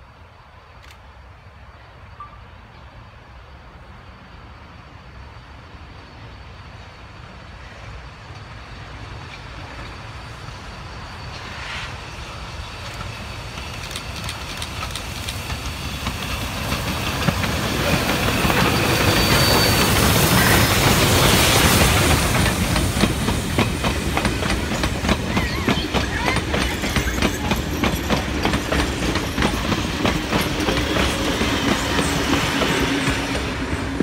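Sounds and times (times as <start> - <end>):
steam locomotive passing: 0.0 - 34.0
rail clicks: 11.0 - 34.0.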